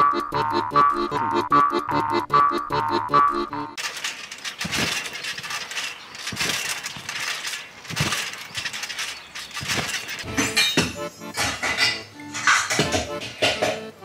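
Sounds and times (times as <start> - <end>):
trampoline mat thumping: 3.8 - 11.8
steady rustling noise: 3.8 - 14.0
dishes clinking: 4.4 - 14.0.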